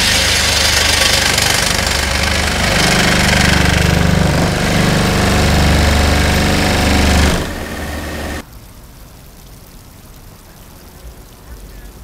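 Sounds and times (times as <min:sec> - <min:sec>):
plate compactor vibrating drone: 0:00.0 - 0:08.4.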